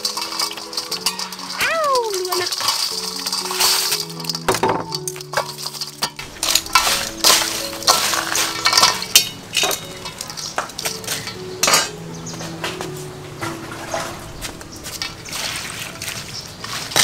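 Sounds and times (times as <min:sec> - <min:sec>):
metal tongs clattering in bowl: 0:00.0 - 0:12.0.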